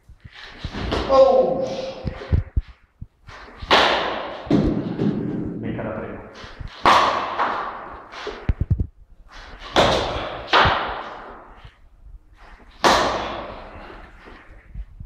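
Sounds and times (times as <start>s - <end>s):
baseball bat hitting balls: 3.3s - 5.6s, 6.3s - 8.6s, 9.3s - 11.6s, 12.7s - 14.2s.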